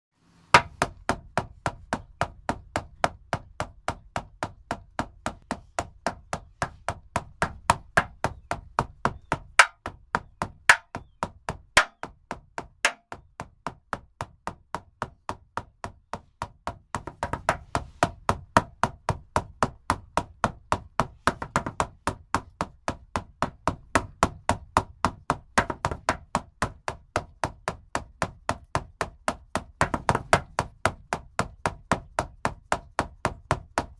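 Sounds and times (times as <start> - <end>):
frame drum beating: 9.3 - 13.2.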